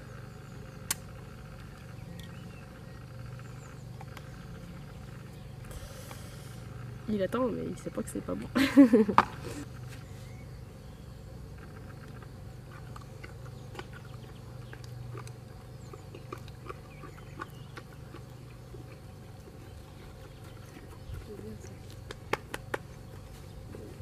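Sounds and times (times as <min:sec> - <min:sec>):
low outdoor hum: 0:00.0 - 0:24.0
small clicks and smacks: 0:21.8 - 0:23.0.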